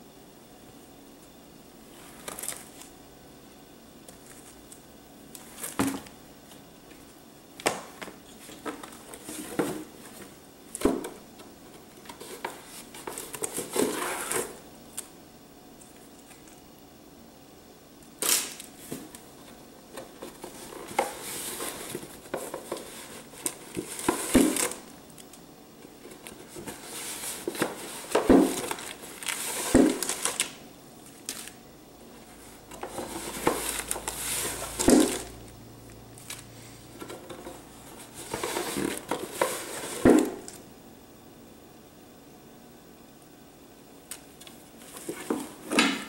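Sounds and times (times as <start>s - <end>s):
paper and cardboard rustling: 8.0s - 11.1s, 11.7s - 14.6s, 19.9s - 24.9s, 25.9s - 31.6s, 32.2s - 35.3s, 37.0s - 40.6s, 44.8s - 46.0s.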